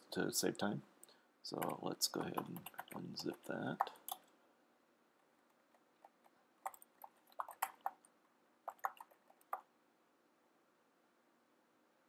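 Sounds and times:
keyboard typing: 0:01.5 - 0:04.3, 0:05.2 - 0:09.7.

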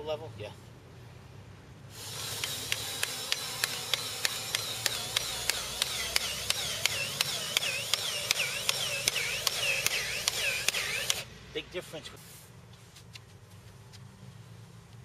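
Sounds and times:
electric hole cutter motor: 0:01.9 - 0:11.3
sharp ticks: 0:02.2 - 0:11.2.

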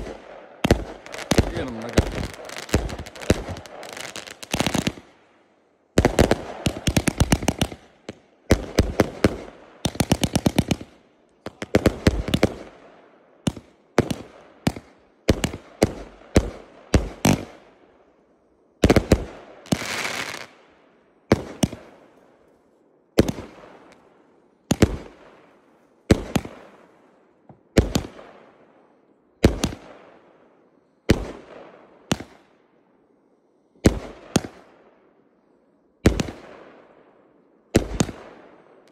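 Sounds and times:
firework bangs and crackle: 0:00.0 - 0:05.2, 0:06.0 - 0:12.8, 0:13.5 - 0:17.6, 0:18.8 - 0:20.6, 0:23.2 - 0:24.0, 0:24.7 - 0:25.3, 0:36.0 - 0:36.6, 0:37.8 - 0:38.3.

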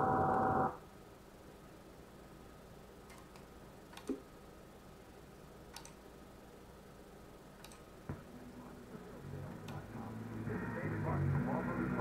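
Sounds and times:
faint hum and hiss: 0:00.0 - 0:12.0
computer mouse clicks: 0:03.1 - 0:04.2, 0:05.7 - 0:06.0, 0:07.6 - 0:07.9.

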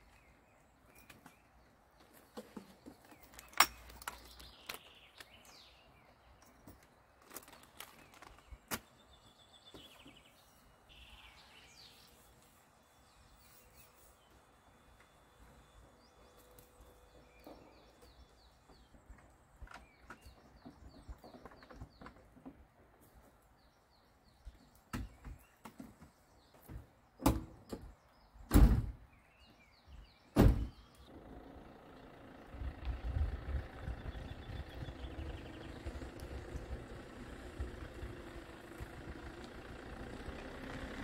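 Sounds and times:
birds chirping faintly: 0:00.0 - 0:41.0
van doors slamming: 0:28.5 - 0:29.0, 0:30.4 - 0:30.8
van engine running: 0:31.1 - 0:41.0.

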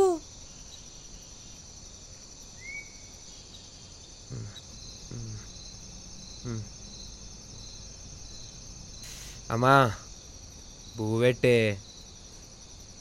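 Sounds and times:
crickets chirping: 0:00.0 - 0:13.0
pulsing insect chirp: 0:00.0 - 0:13.0
man's low vocal sounds: 0:04.3 - 0:05.5, 0:06.4 - 0:06.7.

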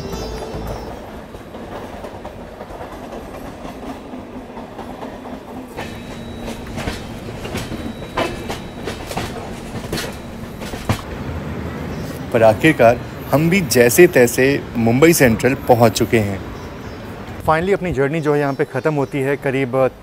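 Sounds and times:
wheels clicking over rail joints: 0:00.0 - 0:11.2
train wheels rumbling on track: 0:00.0 - 0:20.0.

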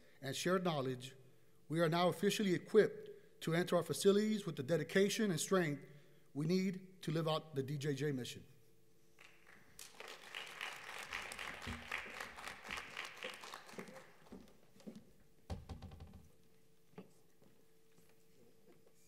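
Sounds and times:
audience applauding: 0:09.2 - 0:14.6.

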